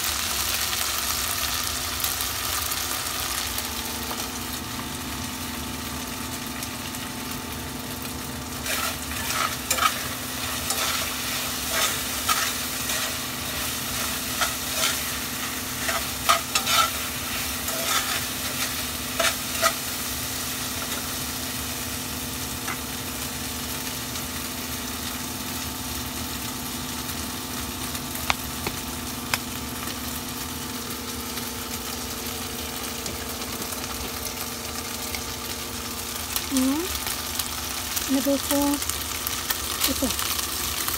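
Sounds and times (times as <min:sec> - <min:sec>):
meat sizzling in a saucepan: 0:00.0 - 0:40.9
spoon scraping a pan: 0:08.6 - 0:19.9.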